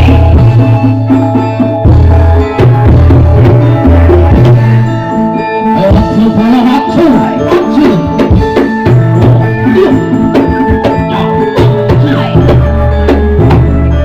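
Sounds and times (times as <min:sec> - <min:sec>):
deep held bass: 0:00.0 - 0:14.0
keyboard chords: 0:00.0 - 0:14.0
wavering sliding melody: 0:00.0 - 0:14.0.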